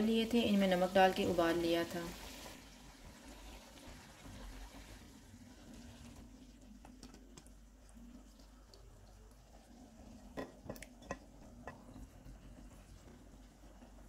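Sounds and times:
serving spoon knocking on pot: 10.4 - 11.8.

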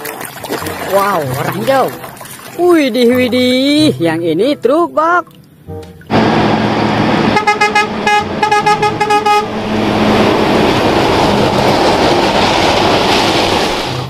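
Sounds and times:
truck engine and tyres passing: 6.1 - 14.0
truck horn toots: 6.2 - 10.1.

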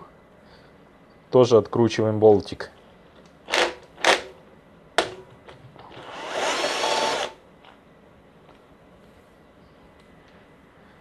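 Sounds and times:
hissing whir: 6.0 - 7.4.

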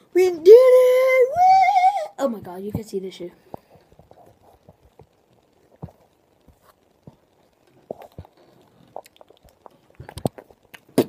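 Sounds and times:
fingers tapping on recording device: 2.4 - 11.0.

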